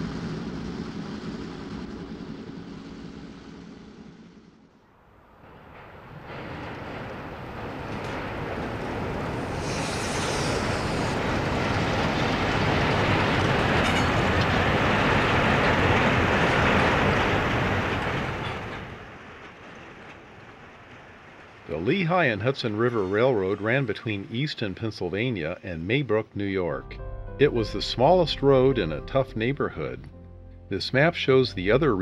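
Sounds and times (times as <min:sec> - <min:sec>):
diesel locomotive engines: 0:00.0 - 0:32.0
train wheels rolling on rails: 0:05.1 - 0:25.6.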